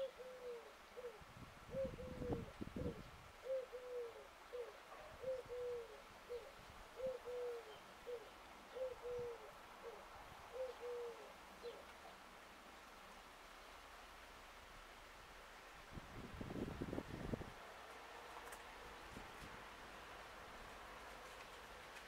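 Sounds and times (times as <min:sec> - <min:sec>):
dove cooing: 0:00.0 - 0:11.9.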